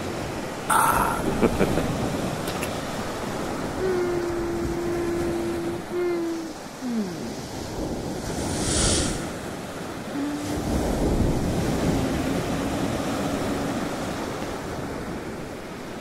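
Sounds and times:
ocean waves and surf: 0.0s - 16.0s
hiss of spray: 8.4s - 9.4s.

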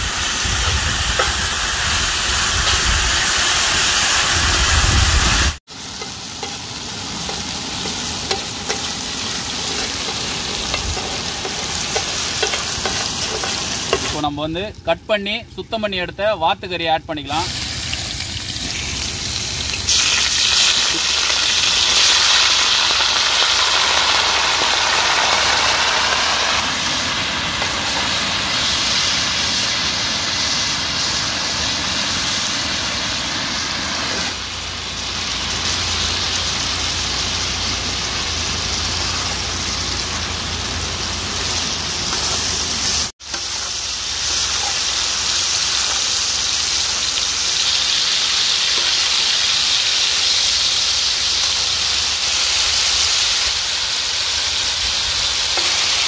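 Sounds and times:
meat sizzling in hot oil: 0.0s - 14.3s, 17.4s - 56.0s
spatula stirring in pan: 7.2s - 14.2s.

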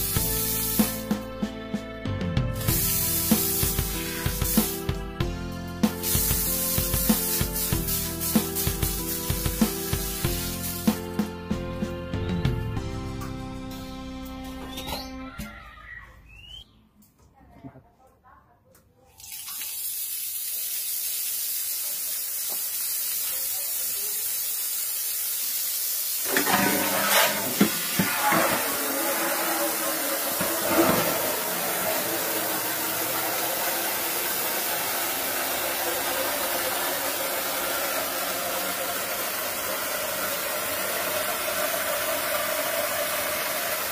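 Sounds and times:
water pouring from tap: 2.6s - 4.8s, 6.0s - 11.0s, 19.2s - 43.9s
water splattering on concrete: 19.2s - 26.1s
water drumming into metal basin: 26.2s - 43.9s.

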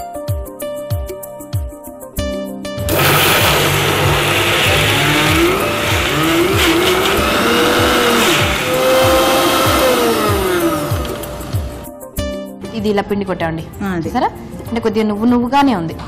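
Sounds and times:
electric mixer grinder whining: 2.9s - 11.9s.

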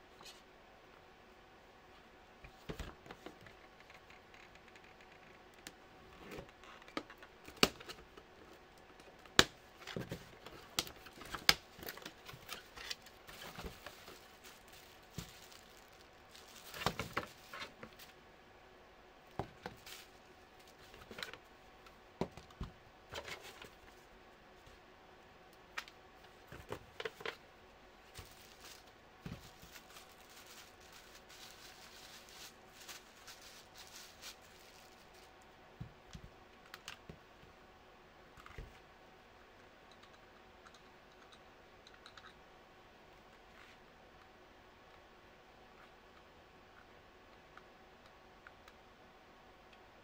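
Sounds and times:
wrapping rustling: 9.8s - 18.2s, 19.5s - 21.4s, 28.0s - 35.5s.

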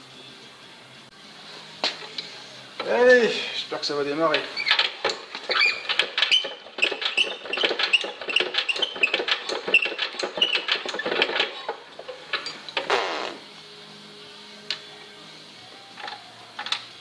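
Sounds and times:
engine cranked by hand clicking: 4.3s - 12.9s.

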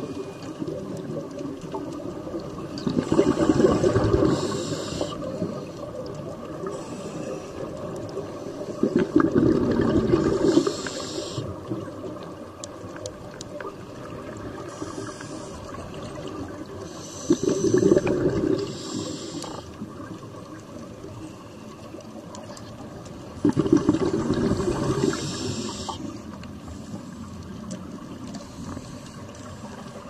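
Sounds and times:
exhaled bubbles rushing: 2.0s - 6.7s, 8.7s - 10.8s, 15.6s - 18.7s, 23.2s - 25.8s
inhaled air hissing: 3.1s - 5.4s, 6.6s - 8.7s, 10.4s - 11.6s, 14.6s - 15.8s, 16.8s - 19.8s, 24.5s - 26.2s.

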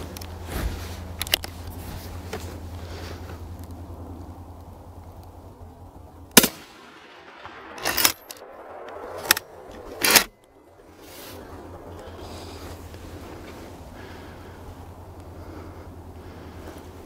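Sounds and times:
gunshots: 6.4s - 10.4s.

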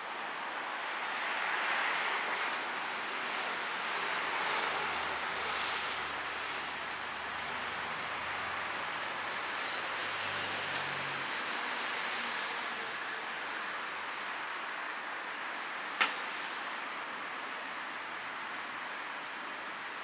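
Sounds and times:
vehicles passing: 0.3s - 15.2s.

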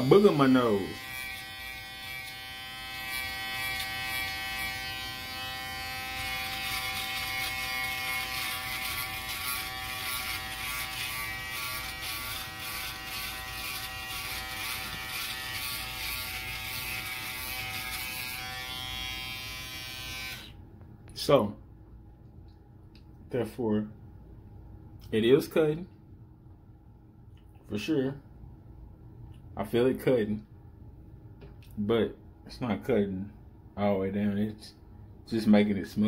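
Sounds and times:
electric shaver buzzing: 0.0s - 20.6s.

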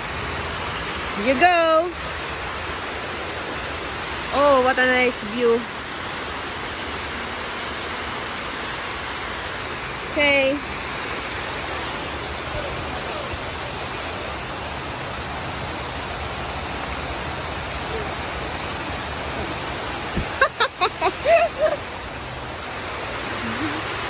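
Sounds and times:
water rushing from waterfall: 0.0s - 24.0s
person's voice: 1.2s - 2.0s, 4.3s - 5.7s.

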